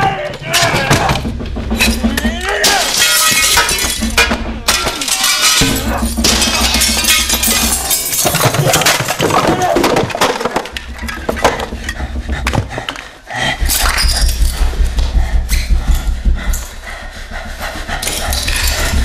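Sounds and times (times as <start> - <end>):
glass breaking and shards clinking: 2.6 - 10.7.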